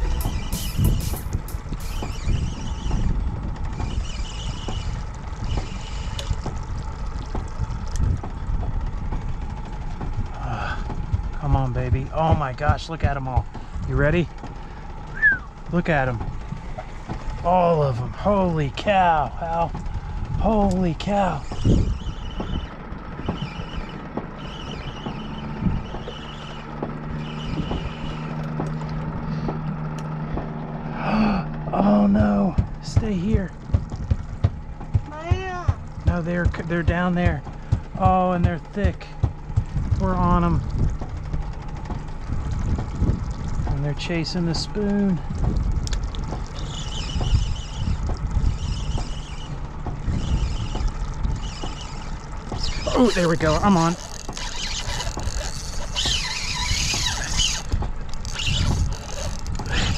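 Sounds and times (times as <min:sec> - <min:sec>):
boat motor rumbling: 0:00.0 - 0:59.9
water splashing against hull: 0:00.0 - 0:59.9
small knocks: 0:53.6 - 0:59.8.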